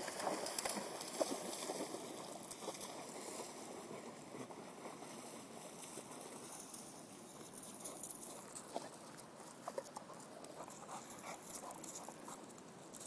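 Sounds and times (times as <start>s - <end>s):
dog splashing through water: 0.0s - 3.7s.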